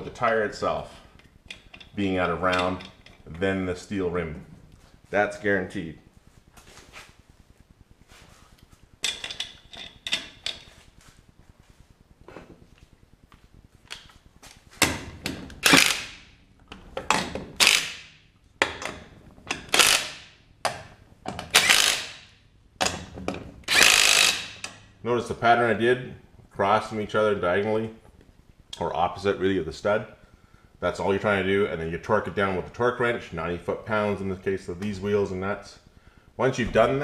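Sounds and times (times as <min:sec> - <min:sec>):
power tool spinning lug nuts: 0:15.5 - 0:16.3, 0:17.4 - 0:18.1, 0:19.5 - 0:20.4, 0:21.4 - 0:22.3, 0:23.6 - 0:24.8.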